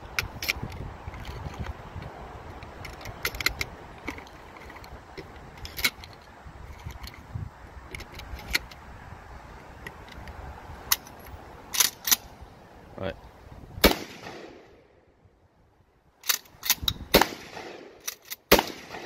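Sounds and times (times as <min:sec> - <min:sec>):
metallic clicks of firearms handled: 0:00.0 - 0:07.3, 0:07.9 - 0:08.9, 0:09.8 - 0:12.3, 0:16.2 - 0:17.0, 0:18.0 - 0:19.0.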